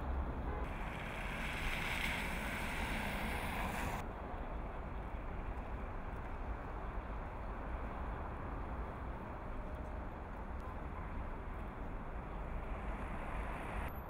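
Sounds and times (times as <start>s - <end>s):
cars passing close by: 0.0s - 4.0s
low rumble of traffic: 0.0s - 14.0s.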